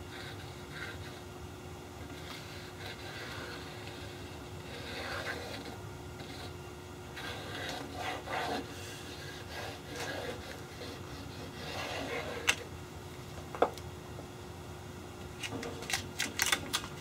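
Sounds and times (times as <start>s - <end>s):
rubbing and scraping on board: 7.2s - 12.6s.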